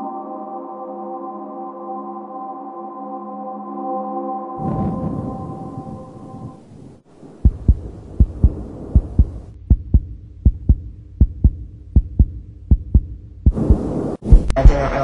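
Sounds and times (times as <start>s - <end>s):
heartbeat thumps: 7.4s - 15.0s.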